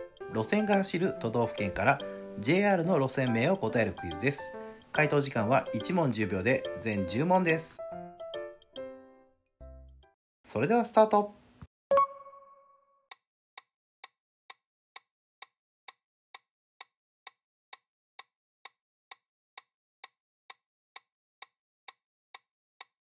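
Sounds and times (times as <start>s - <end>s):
countdown timer ticks: 0.0s - 7.6s, 11.9s - 14.2s.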